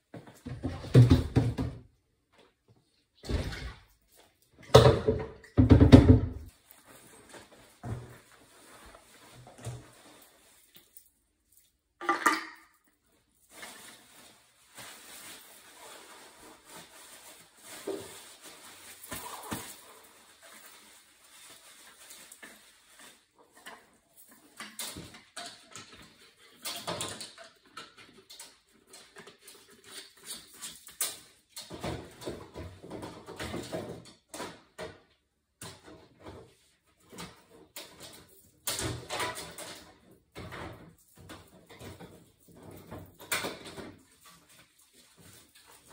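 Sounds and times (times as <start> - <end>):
rustling and rubbing with cloth: 6.5 - 11.8, 13.1 - 24.1, 44.0 - 45.9.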